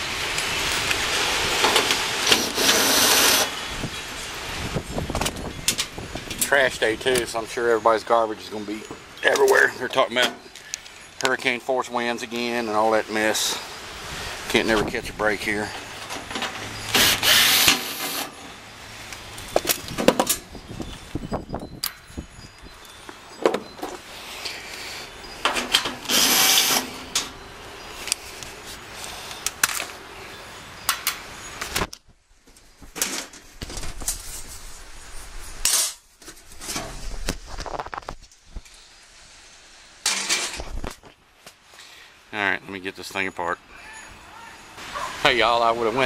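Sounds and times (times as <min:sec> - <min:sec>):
cordless drill backing out screws: 0:01.6 - 0:03.5, 0:16.0 - 0:18.5, 0:25.4 - 0:27.3.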